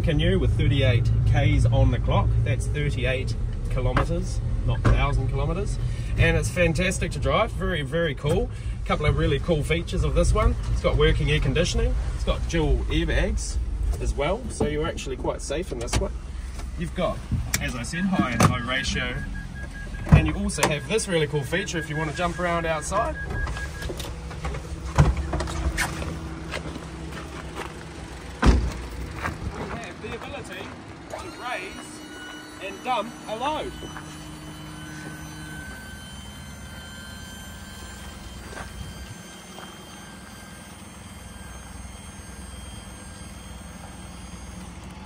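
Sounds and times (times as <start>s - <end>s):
engine idling: 0.0s - 45.0s
electronic beeping: 17.6s - 26.4s, 31.1s - 45.0s.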